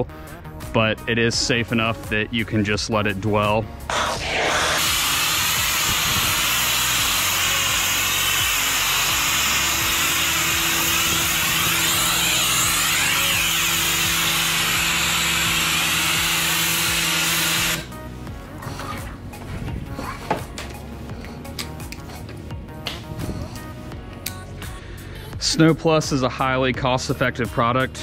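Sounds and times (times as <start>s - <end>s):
pressure washer jet hissing: 3.9s - 18.0s
pressure washer motor humming: 3.9s - 18.0s.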